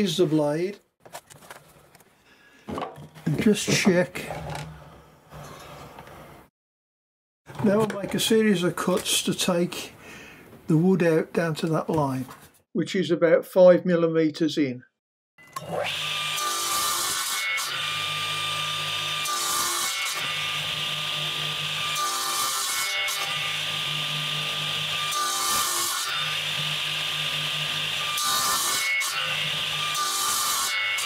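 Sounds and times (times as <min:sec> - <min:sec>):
mitre saw cutting wood: 0:15.4 - 0:31.0.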